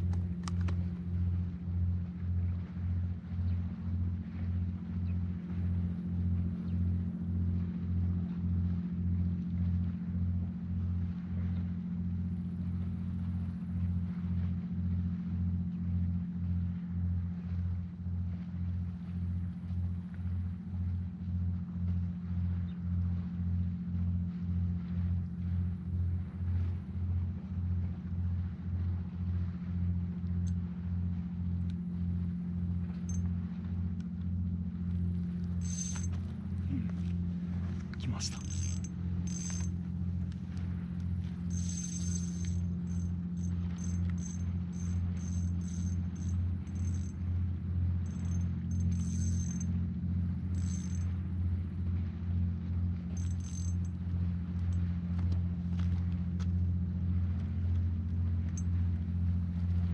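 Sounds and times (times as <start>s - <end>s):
low throbbing engine drone: 0.0s - 59.9s.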